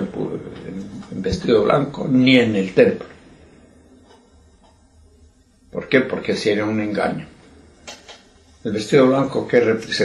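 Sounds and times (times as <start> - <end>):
man speaking: 0.0 - 3.4, 5.7 - 7.6, 8.6 - 10.0
faint low hum: 0.0 - 10.0.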